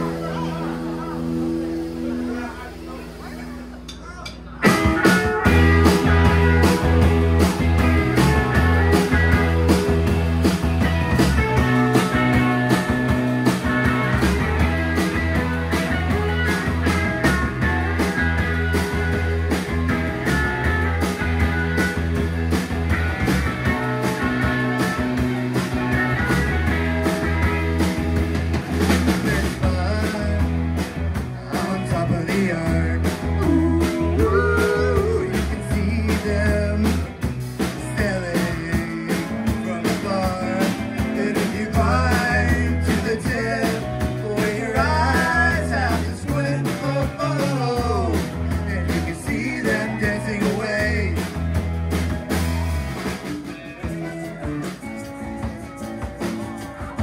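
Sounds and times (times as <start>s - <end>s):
electric guitar lead bending pitch: 0.0s - 31.2s, 32.9s - 37.2s
live rock band playing: 0.0s - 57.0s.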